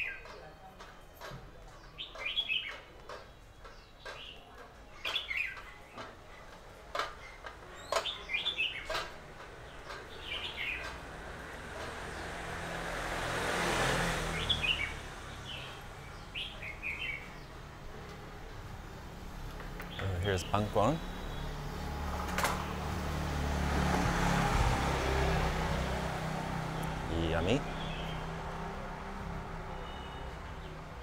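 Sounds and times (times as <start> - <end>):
small birds chirping: 0.0 - 13.2, 14.1 - 23.3, 24.8 - 31.0
passing vehicle: 8.6 - 31.0.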